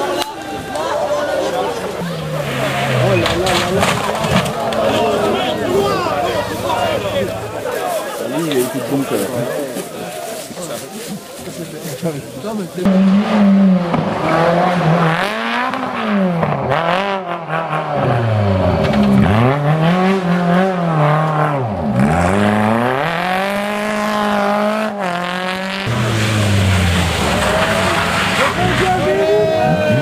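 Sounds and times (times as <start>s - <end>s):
rally car engine revving: 1.4s - 7.8s, 12.8s - 30.0s.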